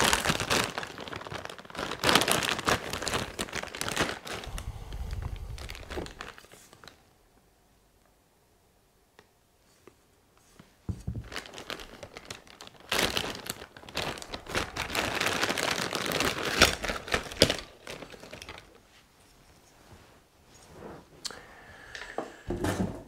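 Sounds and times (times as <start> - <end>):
plastic packaging crinkling: 0.0 - 7.1, 11.0 - 18.9.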